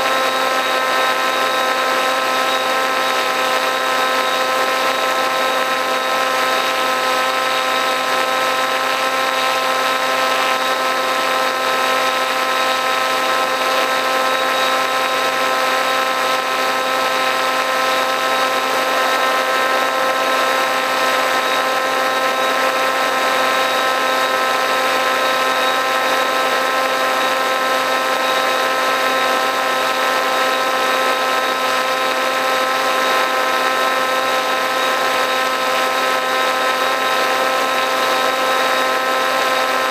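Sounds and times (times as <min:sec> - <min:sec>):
model plane motor whining: 0:00.0 - 0:39.9.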